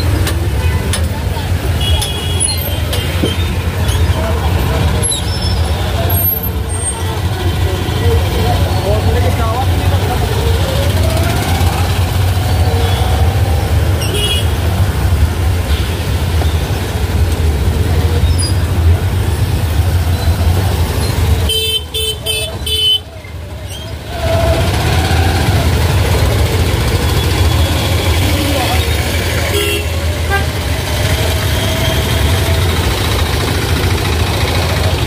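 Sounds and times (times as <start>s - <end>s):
low traffic rumble: 0.0s - 35.0s
vehicles honking: 0.0s - 35.0s.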